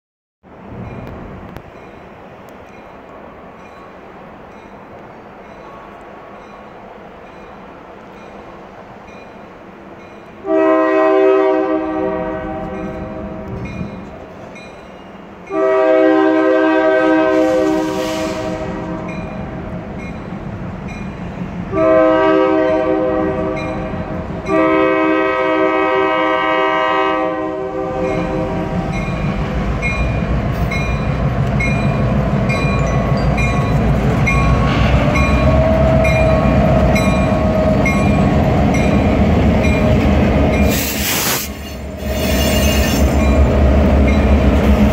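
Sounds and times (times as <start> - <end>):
train engine and wheels rumbling: 0.4 - 44.9
railroad crossing bell dinging: 0.8 - 16.9, 18.8 - 44.9
locomotive horn: 10.4 - 13.6, 15.5 - 19.6, 21.7 - 29.0, 34.5 - 38.0.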